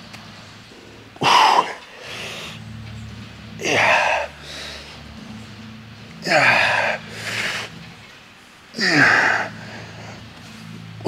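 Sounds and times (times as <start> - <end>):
man grunting with effort: 6.2 - 7.1, 8.8 - 9.7.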